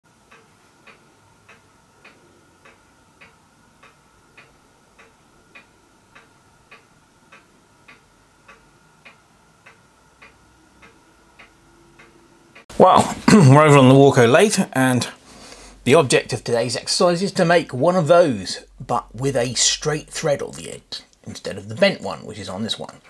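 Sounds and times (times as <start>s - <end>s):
regular ticking: 0.1s - 23.0s
faint high hum: 0.3s - 23.0s.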